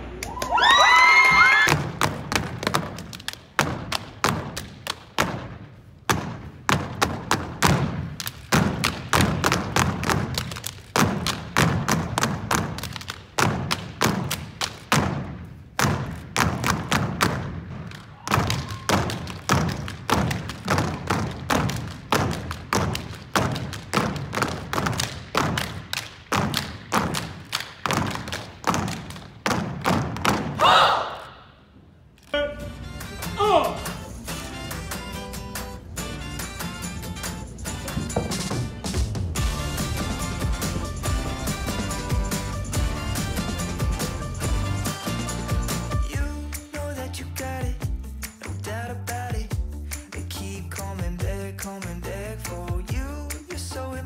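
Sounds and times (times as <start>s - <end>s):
clapping and stomping on wooden floor: 0.2s - 30.6s.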